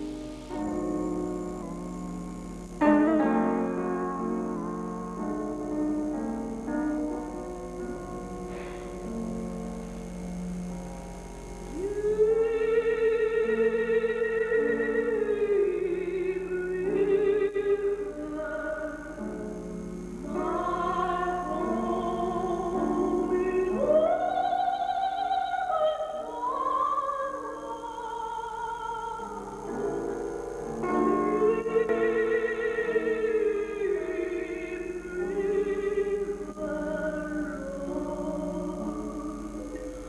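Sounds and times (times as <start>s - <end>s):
low sustained accompaniment: 0.0s - 40.0s
classical solo voice singing: 20.2s - 30.0s.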